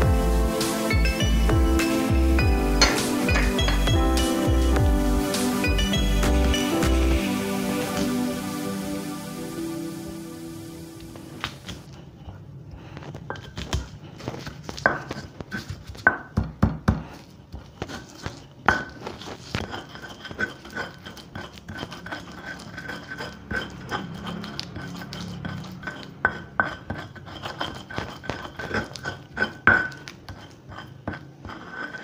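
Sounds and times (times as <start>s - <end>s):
stone pestle knocking: 1.0s - 4.0s, 16.0s - 17.1s
stone scraping on stone: 1.0s - 4.0s, 17.8s - 32.0s.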